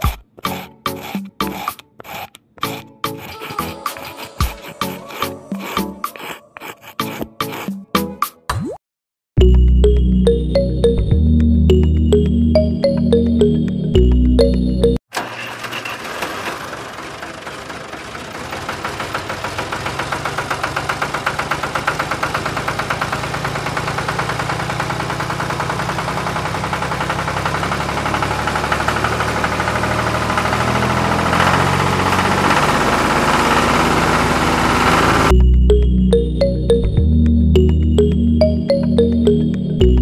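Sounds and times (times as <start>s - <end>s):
tractor engine chugging: 15.1s - 35.3s.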